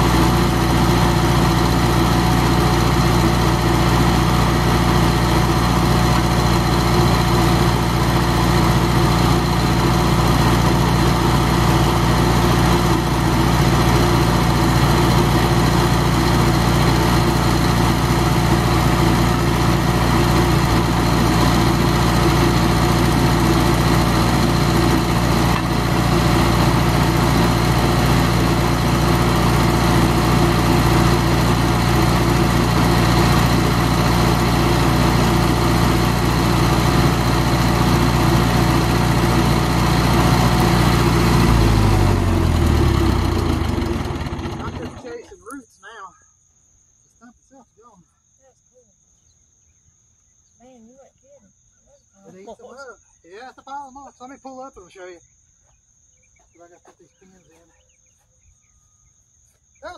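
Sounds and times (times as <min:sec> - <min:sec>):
stump grinder engine running: 0:00.0 - 0:45.3.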